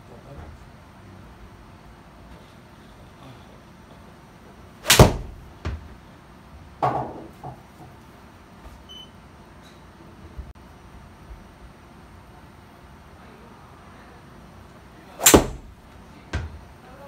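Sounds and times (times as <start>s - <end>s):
golf club striking ball: 4.8s - 5.8s, 15.2s - 15.8s
loud knock with ringing tail: 4.9s - 5.4s, 15.2s - 15.7s.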